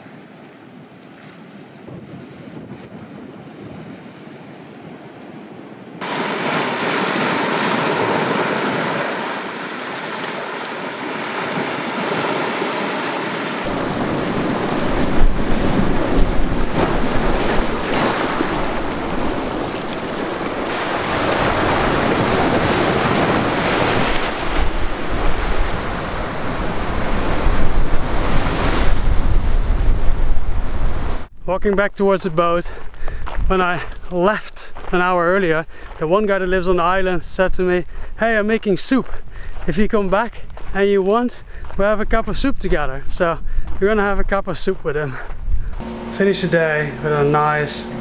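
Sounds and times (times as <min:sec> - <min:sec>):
wind buffeting microphone: 0:01.6 - 0:05.7, 0:13.6 - 0:31.3, 0:32.8 - 0:34.1, 0:41.4 - 0:45.8
surf washing over rocks: 0:06.0 - 0:31.3.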